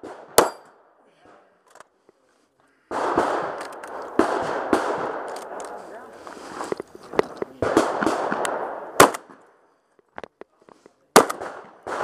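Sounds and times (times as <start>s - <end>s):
shotgun shots with echo: 2.9s - 3.6s, 4.2s - 5.6s, 7.6s - 9.4s, 11.2s - 12.0s.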